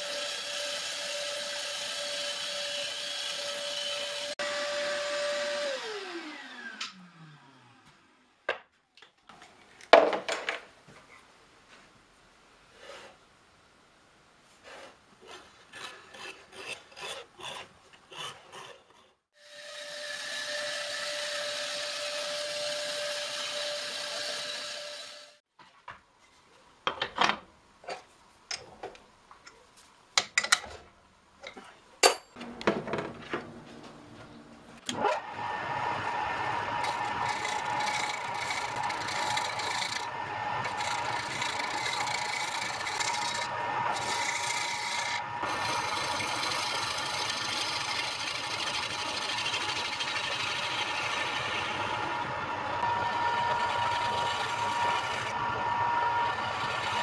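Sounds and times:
chisel cutting spinning wood: 0:00.0 - 0:07.0, 0:15.2 - 0:25.4, 0:34.9 - 0:57.0
wood lathe running: 0:19.5 - 0:25.4, 0:34.9 - 0:57.0
power tool running: 0:34.9 - 0:57.0
dividers scratching wood: 0:36.7 - 0:51.7.

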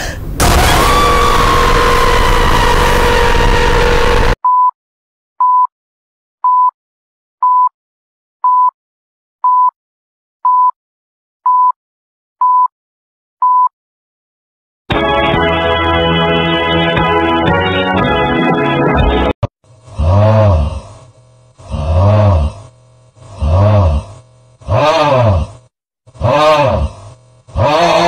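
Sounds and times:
loud noisy sound: 0:00.2 - 0:04.4
loud organ-like music: 0:14.9 - 0:19.4.

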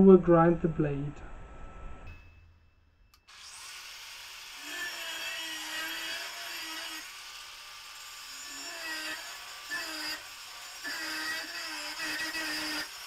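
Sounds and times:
angle grinder grinding steel: 0:03.1 - 0:13.0.

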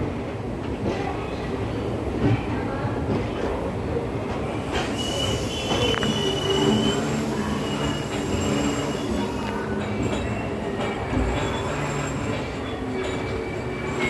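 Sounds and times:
train wheels rumbling on rails: 0:00.0 - 0:14.0
high wheel squeal: 0:04.6 - 0:14.0.

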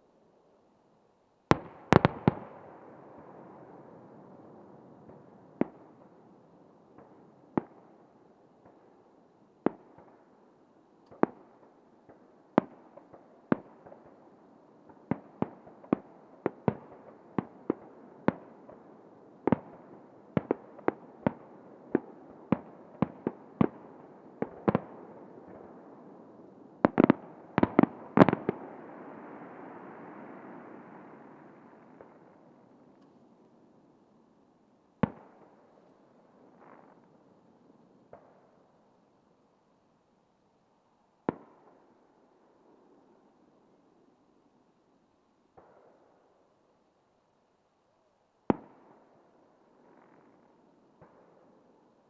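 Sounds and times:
fireworks bursting: 0:26.8 - 0:33.0, 0:36.5 - 0:37.1.

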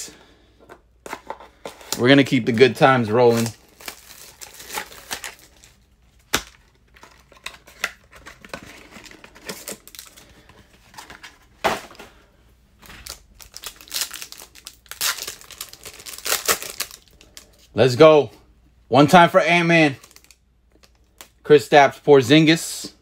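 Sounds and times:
foil crinkling and rustling: 0:01.8 - 0:05.8, 0:12.8 - 0:17.7, 0:19.9 - 0:21.2.

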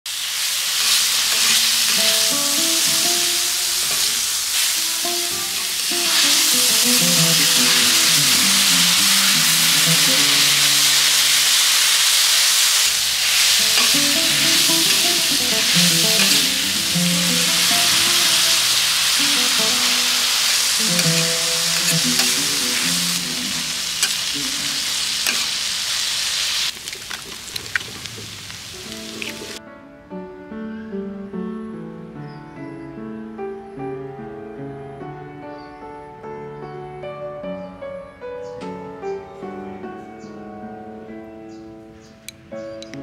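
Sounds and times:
food sizzling on a griddle: 0:00.1 - 0:29.6
metal spatulas stirring: 0:00.8 - 0:02.0, 0:13.3 - 0:16.6, 0:20.3 - 0:25.7
light background music: 0:01.4 - 0:11.6, 0:13.4 - 0:24.0.

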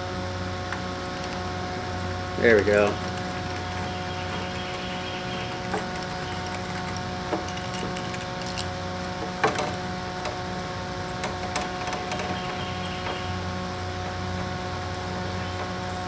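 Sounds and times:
steady background hum: 0:00.0 - 0:16.0
spline roller squeaks and ticks: 0:02.8 - 0:08.7, 0:11.1 - 0:13.4.

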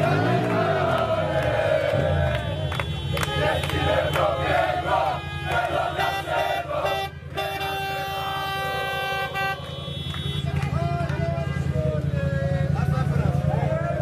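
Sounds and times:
people clapping: 0:00.0 - 0:06.3, 0:09.3 - 0:11.4
crowd chanting and shouting: 0:00.0 - 0:14.0
car horns honking: 0:01.9 - 0:12.1.

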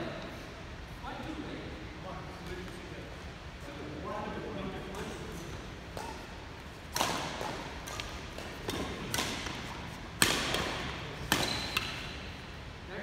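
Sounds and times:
rackets striking shuttlecock: 0:04.8 - 0:12.3.

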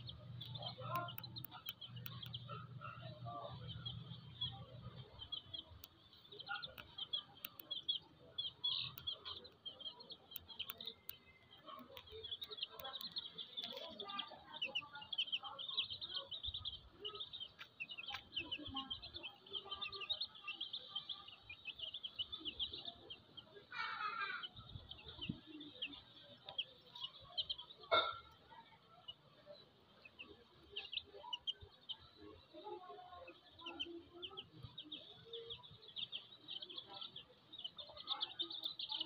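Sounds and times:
baby chicks peeping: 0:00.0 - 0:39.0.

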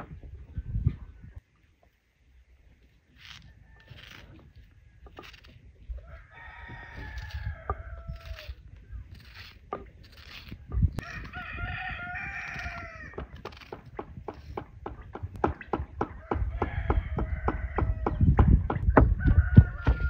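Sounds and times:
knife crunching through onion: 0:03.2 - 0:04.5, 0:05.1 - 0:05.6, 0:08.1 - 0:08.6, 0:09.2 - 0:11.4
rooster crowing: 0:06.0 - 0:08.6, 0:11.0 - 0:13.2, 0:16.2 - 0:18.2, 0:19.2 - 0:20.0.

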